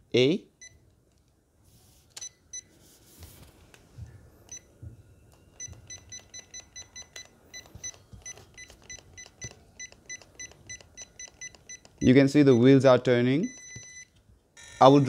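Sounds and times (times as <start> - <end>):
remote control transmitter beeps: 5.3 - 12.8, 13.4 - 14.1.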